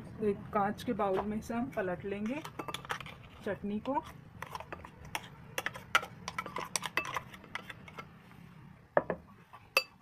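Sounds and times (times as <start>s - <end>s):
metal spoon clinking and scraping: 1.7s - 8.1s.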